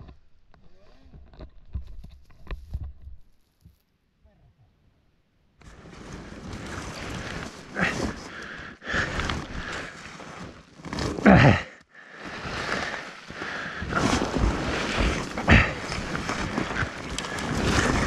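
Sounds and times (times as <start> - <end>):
snowmobile engine and track: 5.6 - 18.0.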